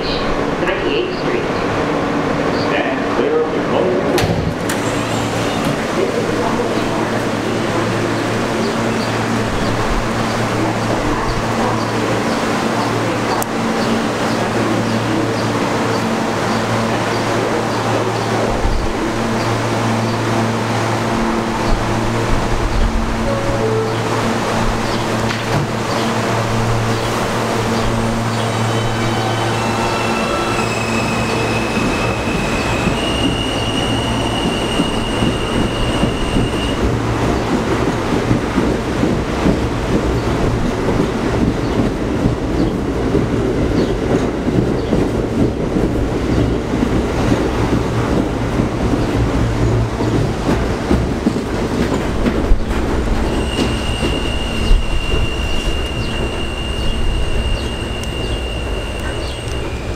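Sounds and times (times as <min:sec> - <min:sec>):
train wheels rumbling on rail: 0:00.0 - 0:59.9
high steady squeal: 0:28.3 - 0:36.8, 0:53.2 - 0:59.9.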